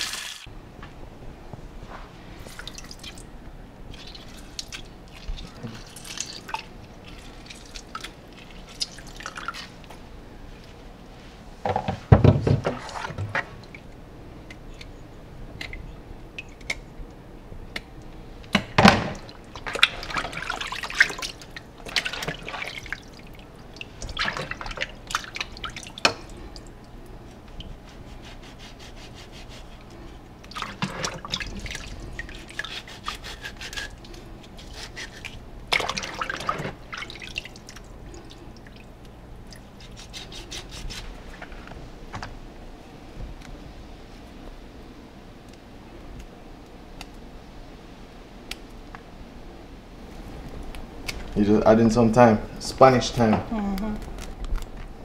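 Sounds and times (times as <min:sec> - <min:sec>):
water sloshing and splashing: 0:03.9 - 0:09.9, 0:12.5 - 0:14.0, 0:18.8 - 0:27.9, 0:29.7 - 0:41.7.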